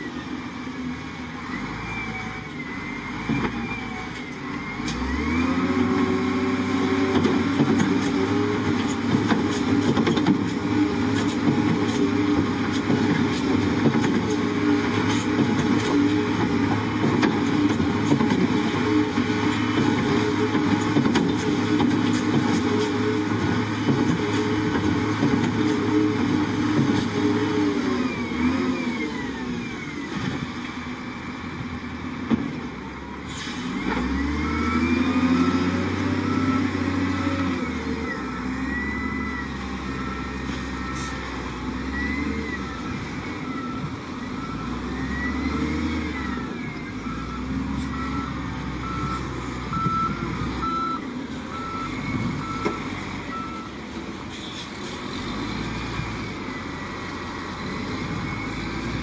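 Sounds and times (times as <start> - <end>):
diesel engine revving: 0.0 - 59.0
reversing alarm beeps: 37.6 - 41.2, 41.8 - 53.8.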